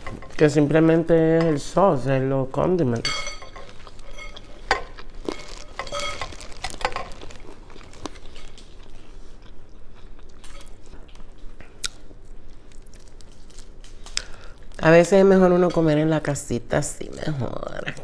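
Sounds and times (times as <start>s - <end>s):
chewing: 3.5s - 14.7s.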